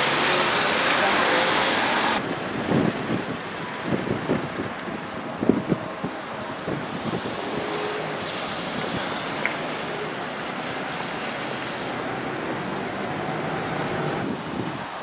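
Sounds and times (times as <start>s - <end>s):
bus driving: 0.0s - 15.0s
traffic tyre hiss: 0.0s - 15.0s
wind on microphone: 2.1s - 10.4s, 13.5s - 15.0s.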